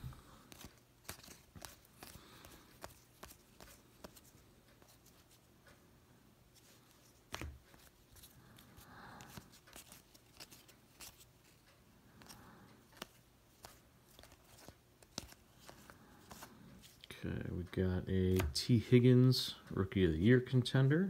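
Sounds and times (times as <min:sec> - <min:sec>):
cards sliding rustles: 0:00.0 - 0:05.5, 0:06.5 - 0:17.1
trading cards clicking: 0:00.4 - 0:05.4, 0:09.2 - 0:11.6, 0:12.2 - 0:17.1.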